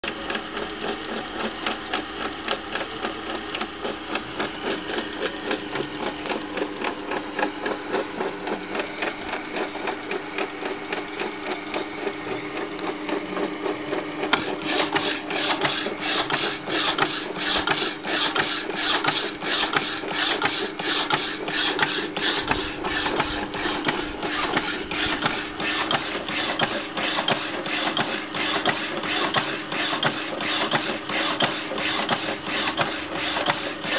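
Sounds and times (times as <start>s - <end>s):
power hacksaw motor hum: 0.1s - 33.9s
hacksaw blade rasping: 14.4s - 33.9s.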